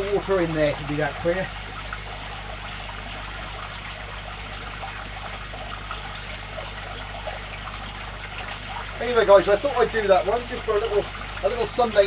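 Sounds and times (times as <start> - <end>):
aquarium filter water trickling: 0.0 - 12.0
low steady hum: 0.0 - 12.0.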